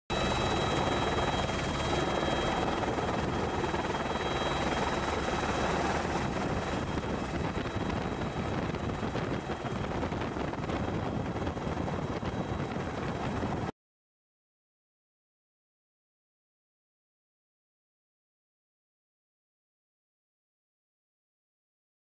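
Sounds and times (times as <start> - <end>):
thin high whine: 0.1 - 13.2
helicopter engine and rotor: 0.1 - 13.7.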